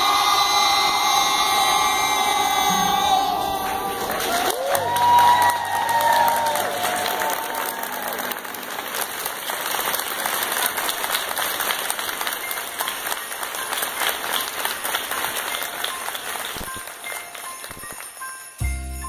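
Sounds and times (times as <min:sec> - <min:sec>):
music: 0:00.0 - 0:19.0
audience applauding: 0:03.4 - 0:18.5.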